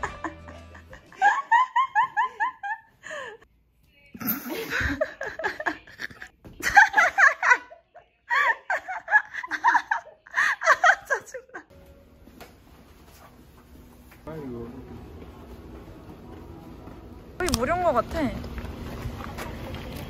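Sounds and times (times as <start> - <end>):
people laughing high-pitched: 0.0 - 3.1, 4.4 - 11.7.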